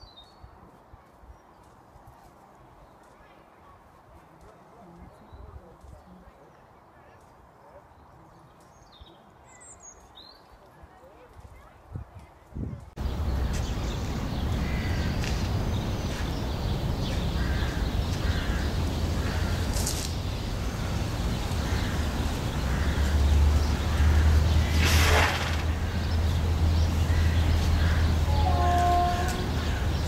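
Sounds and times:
birds calling: 13.0 - 30.0
short burst of hiss: 24.6 - 25.9.

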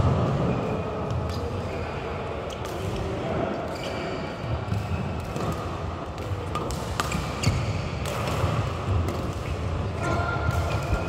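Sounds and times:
rackets striking shuttlecock: 4.7 - 11.0.

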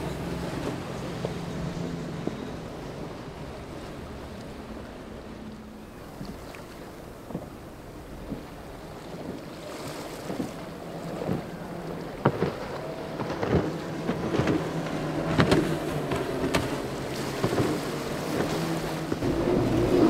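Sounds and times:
hull slapping water: 0.0 - 20.0
outboard motor droning: 0.0 - 20.0
wind rumble on microphone: 0.0 - 20.0.

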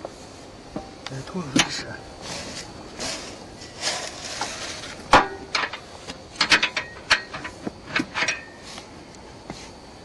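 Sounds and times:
hiss: 2.2 - 5.2, 7.4 - 10.0.

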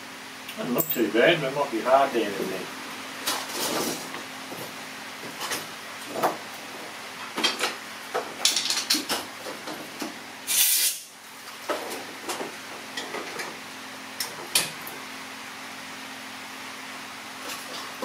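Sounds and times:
air blow gun hiss: 10.5 - 11.1.

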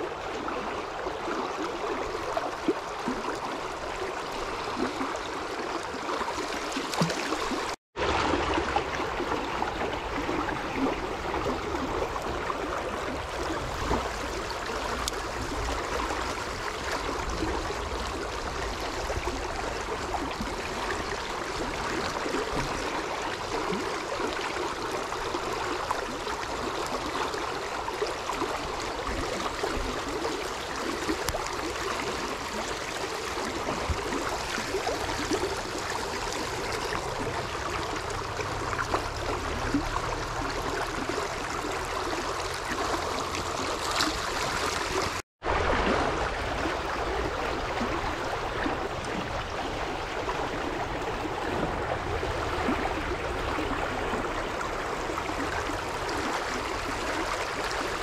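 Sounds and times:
river water rushing: 0.0 - 58.0.

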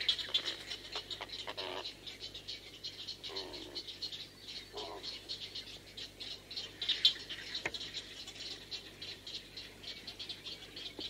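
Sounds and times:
heron ticking chatter: 0.0 - 11.0.

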